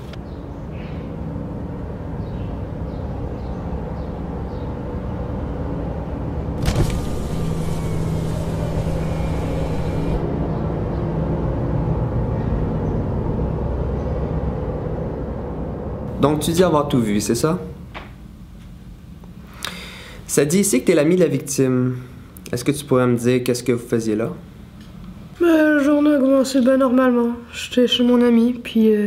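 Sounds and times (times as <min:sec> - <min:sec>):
sharp crack: 0:06.6 - 0:10.2
car engine running: 0:06.6 - 0:10.3.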